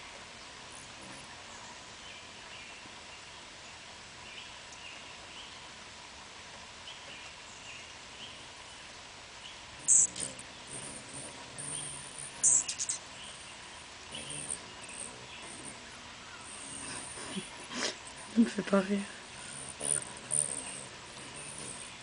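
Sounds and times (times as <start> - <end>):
faint bird chirps: 6.8 - 18.4
high-pitched squeaky bird chatter: 9.8 - 22.0.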